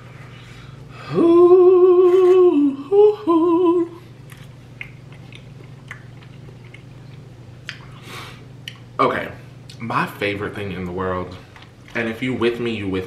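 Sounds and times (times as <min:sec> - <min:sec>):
woman humming with enjoyment: 0:01.0 - 0:04.1.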